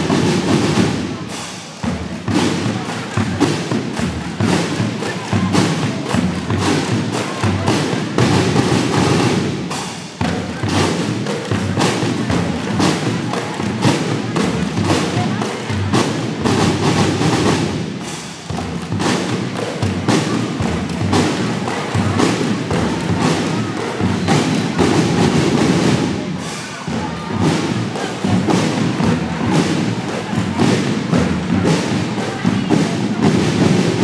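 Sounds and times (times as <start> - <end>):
marching drum band: 0.0 - 34.0.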